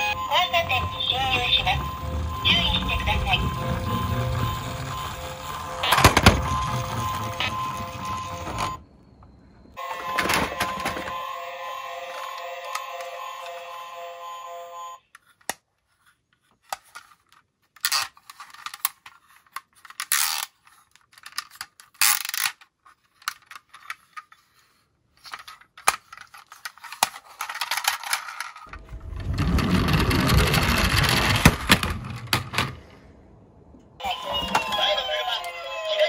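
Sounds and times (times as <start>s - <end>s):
rough rumbling noise: 0.0s - 9.8s, 28.7s - 34.0s
plastic toys clicking and rattling: 0.6s - 8.7s, 16.6s - 32.7s.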